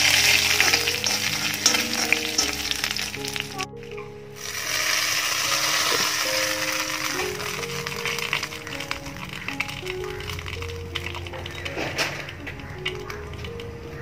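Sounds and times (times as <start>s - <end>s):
hot oil sizzling in a pan: 0.0s - 3.6s, 4.4s - 11.6s.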